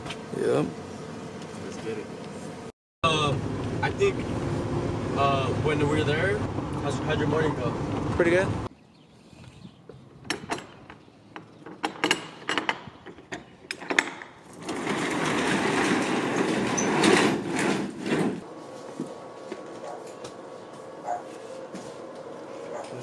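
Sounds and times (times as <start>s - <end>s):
roll-up door rattling: 13.7s - 18.4s.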